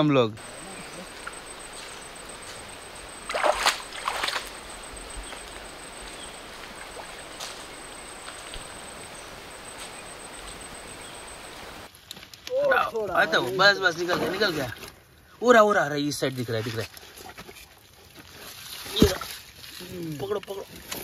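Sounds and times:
stream trickling over rocks: 0:00.4 - 0:11.9, 0:16.2 - 0:21.0
hands splashing in water: 0:03.3 - 0:04.6.

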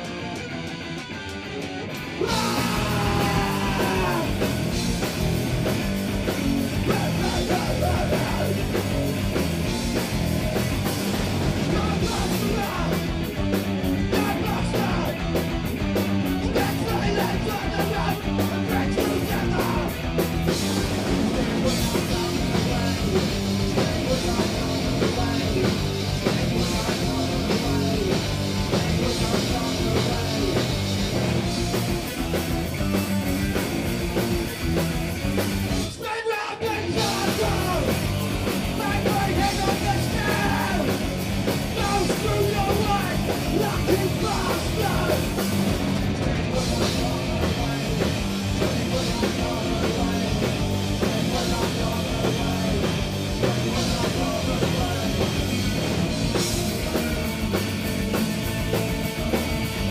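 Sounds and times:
distorted electric guitar: 0:00.0 - 0:59.9
drum kit: 0:00.0 - 0:59.9
man shouting lead vocal: 0:02.2 - 0:04.5, 0:06.8 - 0:08.8, 0:11.6 - 0:13.2, 0:14.0 - 0:15.3, 0:16.4 - 0:20.0, 0:35.8 - 0:38.0, 0:38.7 - 0:41.0, 0:41.7 - 0:45.4.

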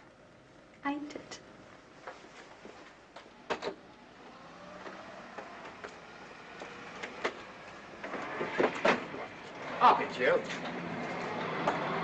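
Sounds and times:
faint street noise: 0:00.8 - 0:12.0
motor vehicle running: 0:03.2 - 0:12.0.

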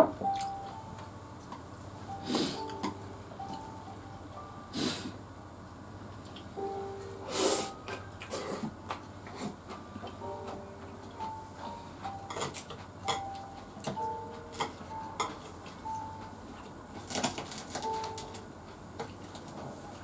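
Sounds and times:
faint high steady notes: 0:00.0 - 0:05.6, 0:06.5 - 0:18.8
chopsticks clicking on dishes: 0:12.3 - 0:15.8.

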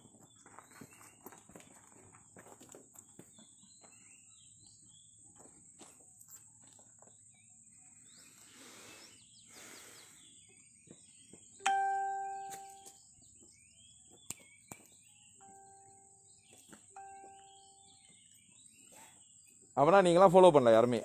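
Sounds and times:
faint bird chirps: 0:06.2 - 0:20.2
phone notification ding: 0:11.6 - 0:13.0, 0:17.0 - 0:18.0.

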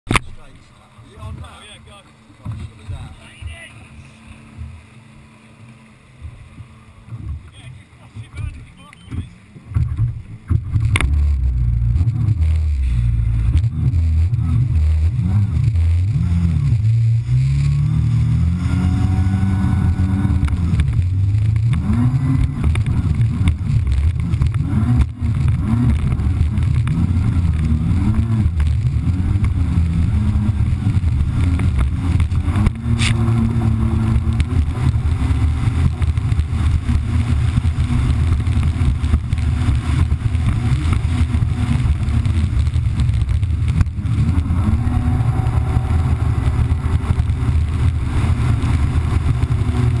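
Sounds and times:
jet ski engine running: 0:00.1 - 0:50.0
rush of water and wind: 0:00.1 - 0:50.0.

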